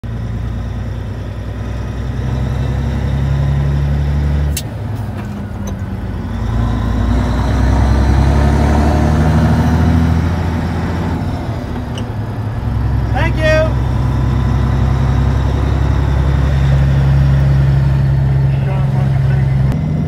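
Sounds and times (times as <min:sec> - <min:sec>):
truck diesel engine accelerating: 0:00.0 - 0:20.0.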